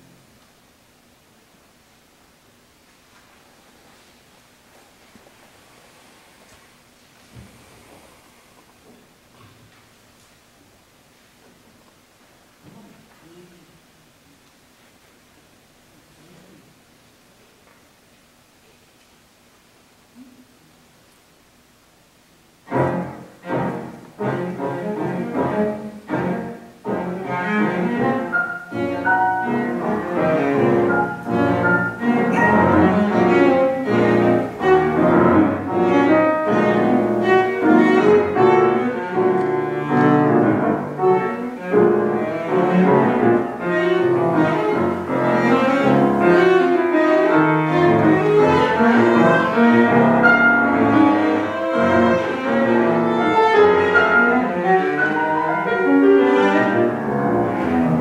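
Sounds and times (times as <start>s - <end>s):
cello and piano classical piece: 22.6s - 58.0s.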